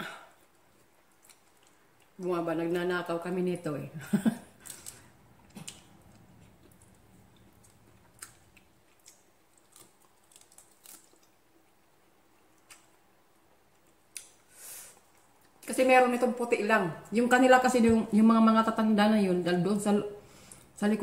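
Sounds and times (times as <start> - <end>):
chewing: 4.6 - 13.0.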